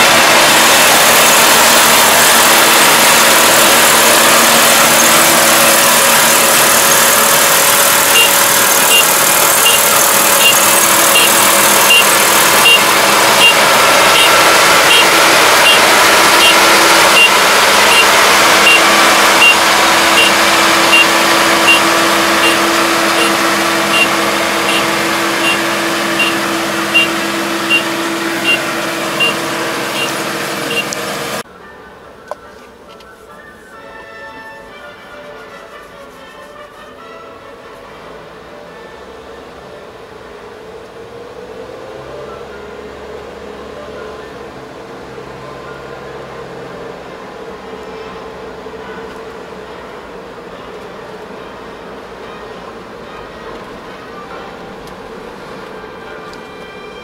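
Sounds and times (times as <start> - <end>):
diesel engine running: 0.0 - 31.5, 37.8 - 57.0
short high beeper: 8.1 - 30.9.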